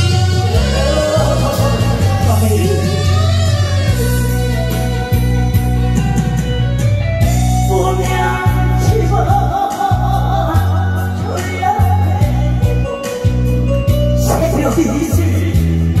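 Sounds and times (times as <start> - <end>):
person singing with vibrato: 0.0 - 4.8, 7.6 - 13.5
amplified backing music with bass: 0.0 - 16.0.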